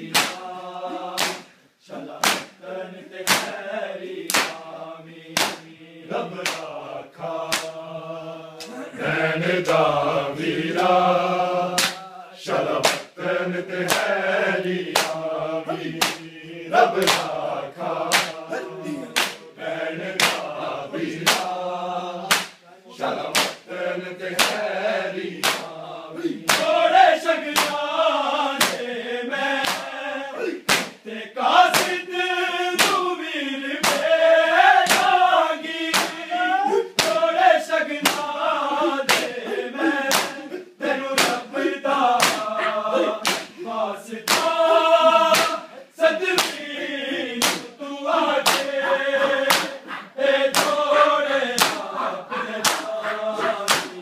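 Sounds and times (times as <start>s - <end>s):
men chanting in unison: 0.0s - 54.0s
chest beating slaps: 0.1s - 2.6s, 3.2s - 3.6s, 4.3s - 4.7s, 5.4s - 5.7s, 6.4s - 6.8s, 7.4s - 7.8s, 11.7s - 12.1s, 12.8s - 13.2s, 13.8s - 14.2s, 14.9s - 16.4s, 17.0s - 17.4s, 18.0s - 19.5s, 20.2s - 20.6s, 21.2s - 21.6s, 22.2s - 22.6s, 23.2s - 23.7s, 24.4s - 24.7s, 25.4s - 25.8s, 26.4s - 26.8s, 27.5s - 27.8s, 28.6s - 28.8s, 29.6s - 29.9s, 30.6s - 31.0s, 31.7s - 32.0s, 32.8s - 33.0s, 33.8s - 34.1s, 34.8s - 35.1s, 35.8s - 36.2s, 36.8s - 37.2s, 38.0s - 38.3s, 39.1s - 39.4s, 40.0s - 40.5s, 41.2s - 41.5s, 42.2s - 43.6s, 44.2s - 45.7s, 46.3s - 46.7s, 47.4s - 47.7s, 48.4s - 54.0s.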